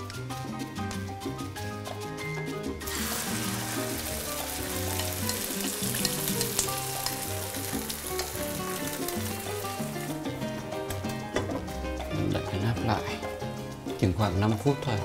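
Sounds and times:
background music: 0.0 - 15.0
food sizzling in oil: 2.8 - 14.4.

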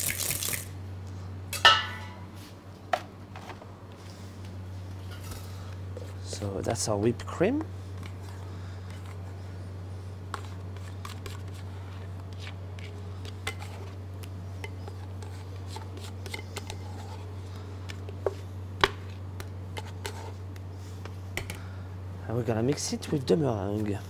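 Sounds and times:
steady low hum: 0.0 - 24.0
metal bowls clinking: 1.6 - 2.2.

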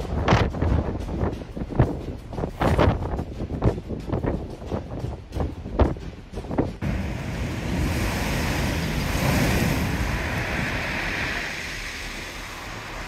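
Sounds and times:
wind: 0.0 - 13.0
seawater washing across pavement: 6.8 - 13.0
storm surf breaking against a wall: 6.8 - 13.0.

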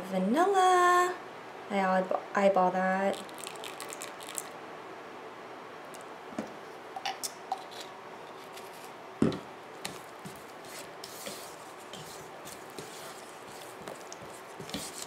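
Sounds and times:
spatula scraping mashed banana: 9.9 - 15.0.

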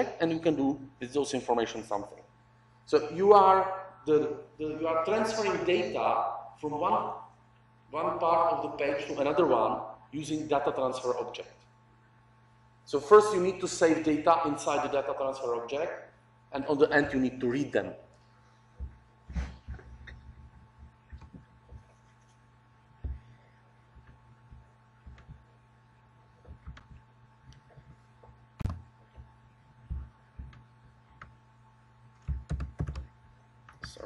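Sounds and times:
low steady hum: 0.0 - 34.0
keyboard and mouse clicks: 26.4 - 28.0, 32.2 - 33.1.

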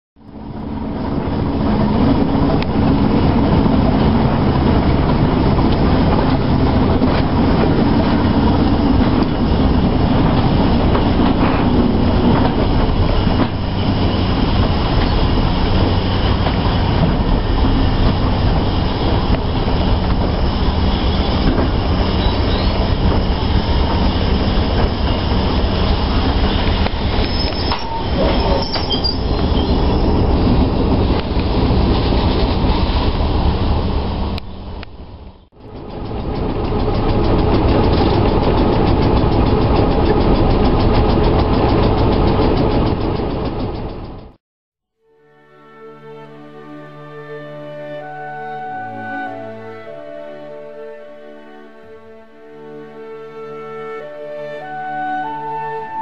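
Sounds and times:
train running past: 0.2 - 44.4.

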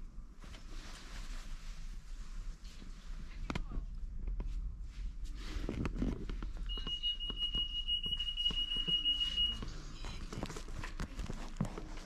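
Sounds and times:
handling clicks and rustles: 5.6 - 12.0.

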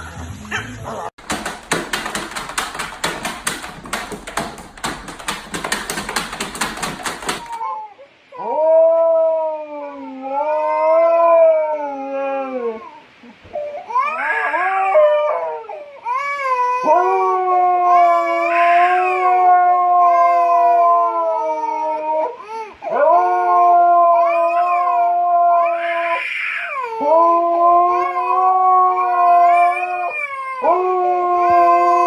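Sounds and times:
dog howling: 14.0 - 15.9, 16.7 - 32.0.

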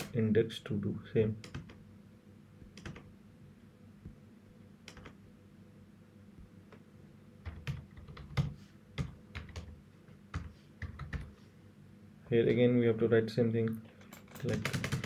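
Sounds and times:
keyboard typing: 1.4 - 1.8, 2.7 - 3.1, 4.9 - 5.2, 7.4 - 9.7, 10.3 - 11.3, 14.0 - 15.0.

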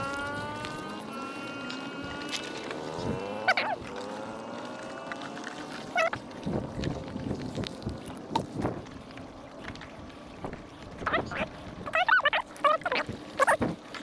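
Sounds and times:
passing vehicle engine: 0.0 - 6.3
water dripping and splashing: 0.0 - 14.0
wavering animal calls: 3.1 - 4.5, 5.7 - 6.2, 11.0 - 13.6.

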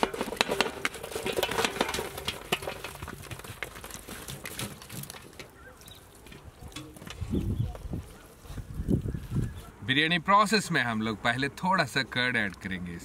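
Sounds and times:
fried pieces clattering in metal pot: 0.0 - 3.8.

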